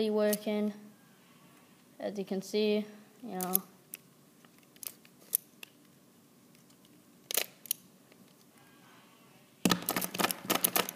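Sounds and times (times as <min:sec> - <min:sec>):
plastic puzzle clicks: 0:09.7 - 0:10.9.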